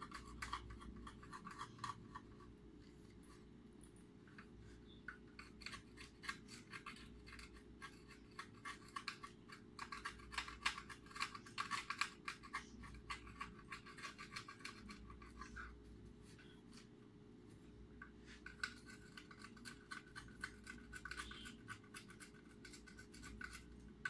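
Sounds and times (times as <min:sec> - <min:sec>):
hand tool scratching and clicking: 0:05.1 - 0:15.6.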